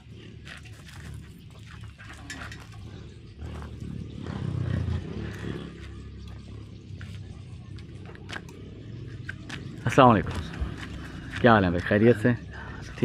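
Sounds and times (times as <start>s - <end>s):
bicycle metallic clinks: 0.4s - 3.6s.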